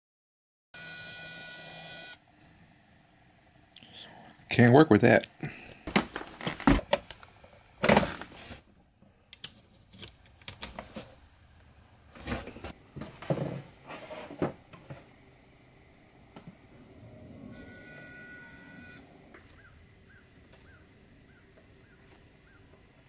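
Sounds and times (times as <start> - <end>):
charger cable knocks and rustles: 5.9 - 7.1.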